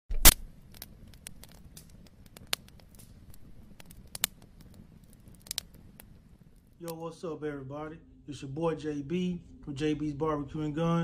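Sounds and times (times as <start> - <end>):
bonfire crackling and popping: 0.1 - 7.3
low rumble of flames: 0.1 - 11.0.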